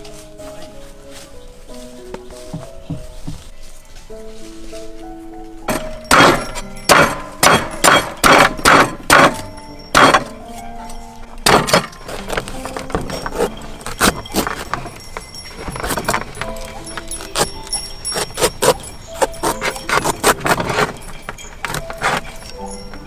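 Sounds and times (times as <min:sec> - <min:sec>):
background music: 0:00.0 - 0:23.0.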